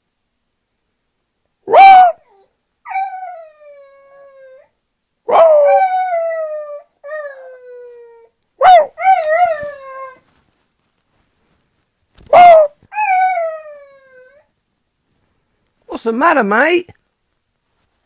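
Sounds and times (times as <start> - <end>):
dog yelping: 1.7 - 3.7, 8.6 - 10.2, 12.3 - 14.4
dog howling: 1.7 - 4.7, 5.3 - 10.2, 12.3 - 14.5.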